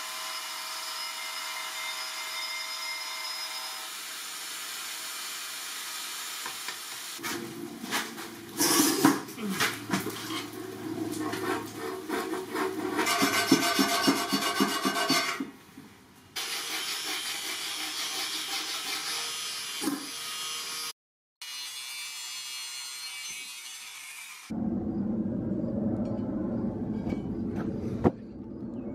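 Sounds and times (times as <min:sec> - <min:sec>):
hand file rasping on steel: 0:11.2 - 0:15.5, 0:16.5 - 0:19.3.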